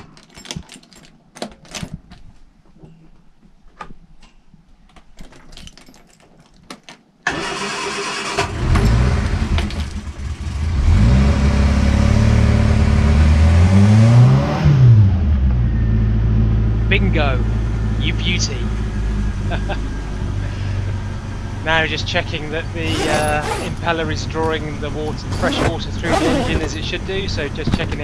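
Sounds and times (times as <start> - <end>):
boat engine starting and revving: 7.3 - 15.5, 16.6 - 28.0.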